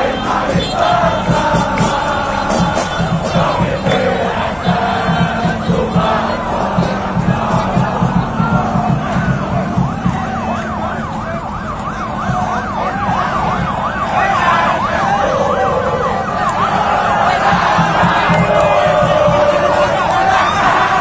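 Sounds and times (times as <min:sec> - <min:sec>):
crowd noise: 0:00.0 - 0:21.0
siren yelping: 0:07.3 - 0:21.0.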